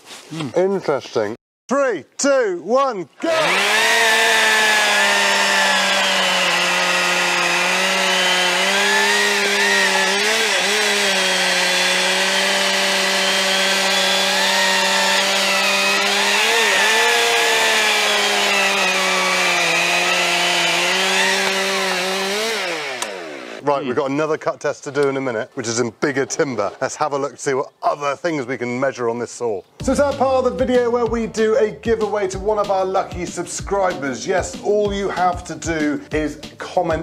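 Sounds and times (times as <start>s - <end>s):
chainsaws cutting logs: 3.2s - 23.6s.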